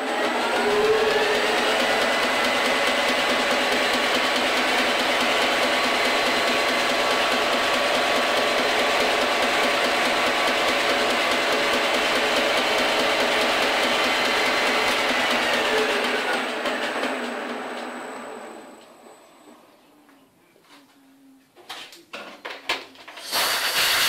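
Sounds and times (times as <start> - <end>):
milling machine motor whine: 0.0 - 18.9.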